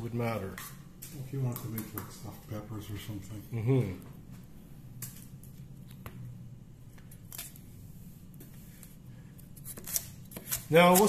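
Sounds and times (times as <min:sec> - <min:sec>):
low steady hum: 0:00.0 - 0:11.0
knife on plastic cutting board: 0:09.6 - 0:11.0.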